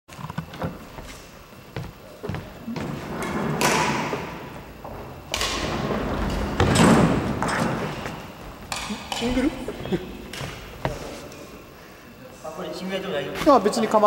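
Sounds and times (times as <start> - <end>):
thuds and scuffing in gym hall: 0.6 - 11.4, 13.4 - 13.6.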